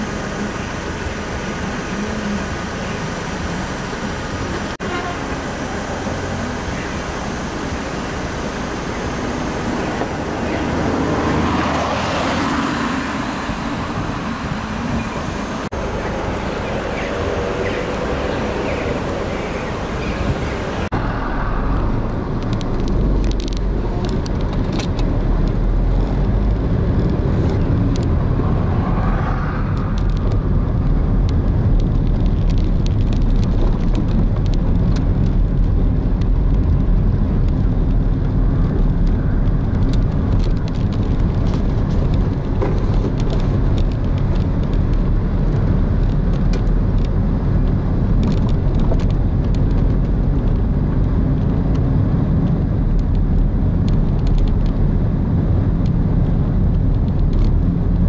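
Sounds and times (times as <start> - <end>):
car road and engine rumble: 0.0 - 58.0.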